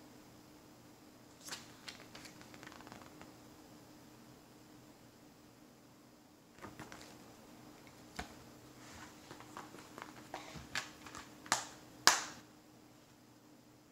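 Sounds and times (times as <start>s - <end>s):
paper rustling: 1.4s - 3.2s, 6.6s - 11.7s.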